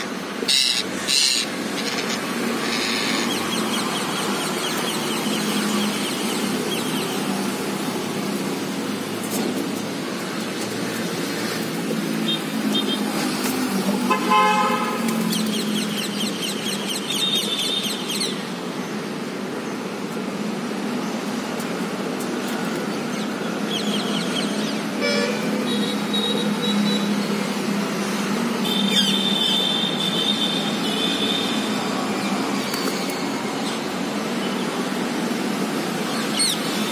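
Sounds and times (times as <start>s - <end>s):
road traffic hum: 0.0s - 36.9s
vehicle horns tooting: 14.1s - 15.1s, 25.0s - 27.2s.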